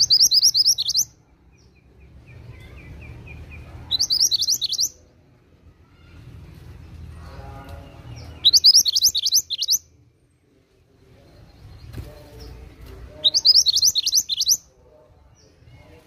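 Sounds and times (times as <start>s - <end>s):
bird singing high notes: 3.9s - 5.0s, 8.4s - 9.8s, 13.2s - 14.7s.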